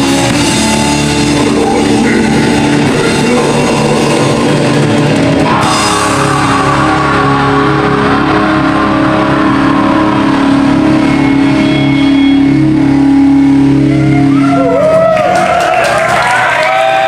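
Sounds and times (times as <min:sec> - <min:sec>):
distorted guitar drone: 0:00.0 - 0:17.0
crowd shouting: 0:05.2 - 0:12.7, 0:13.6 - 0:17.0.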